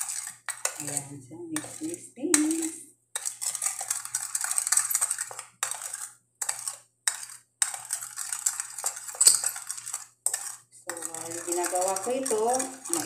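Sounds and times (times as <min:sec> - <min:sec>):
spoon scraping ceramic bowl: 0:00.0 - 0:13.0.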